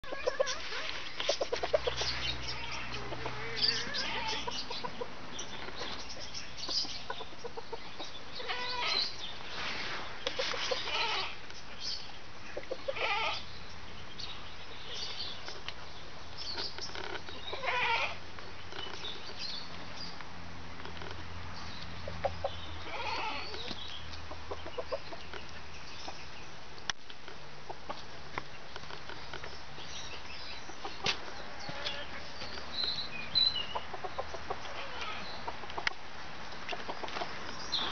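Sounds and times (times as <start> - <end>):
hens clucking: 0.0 - 9.1, 10.2 - 11.4, 12.5 - 13.5, 16.9 - 18.2, 21.8 - 26.2, 30.5 - 37.9.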